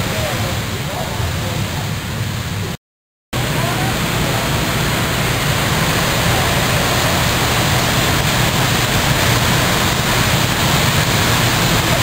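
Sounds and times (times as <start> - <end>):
go-kart engines running: 3.4 - 12.0.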